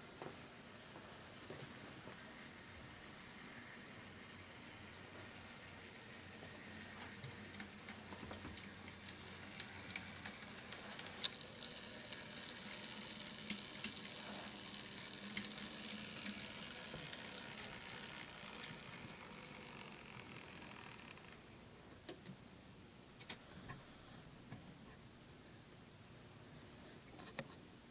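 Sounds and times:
model train rolling on track: 0:01.5 - 0:21.6.

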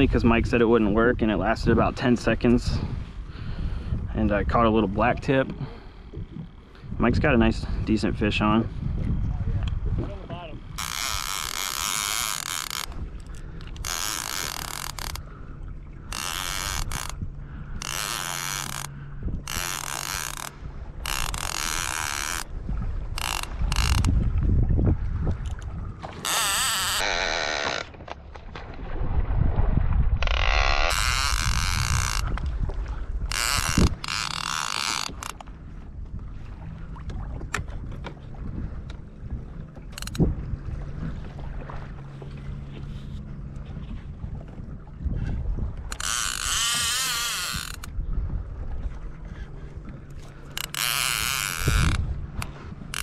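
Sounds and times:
wind rumbling on microphone: 0:00.0 - 0:53.0
fishing reel drag buzzing: 0:10.6 - 0:15.4, 0:16.0 - 0:24.2, 0:26.2 - 0:27.9, 0:30.2 - 0:32.4, 0:33.2 - 0:35.5, 0:39.9 - 0:40.3, 0:45.8 - 0:48.0, 0:50.2 - 0:53.0.

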